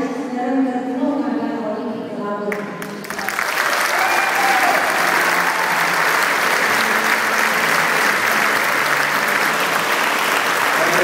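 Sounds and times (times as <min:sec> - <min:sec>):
crowd applauding: 0:02.8 - 0:11.0.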